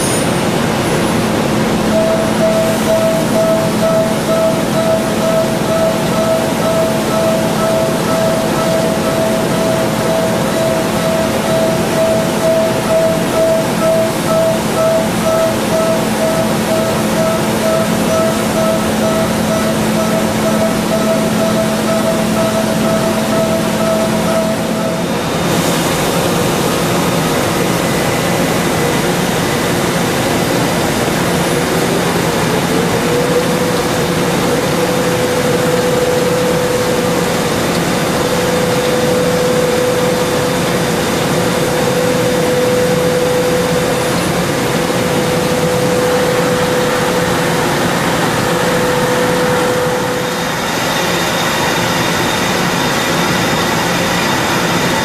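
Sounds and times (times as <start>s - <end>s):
cnc machining noise: 0.0s - 55.0s
coolant spray rushing: 0.0s - 55.0s
steady cutting tone: 0.8s - 37.4s.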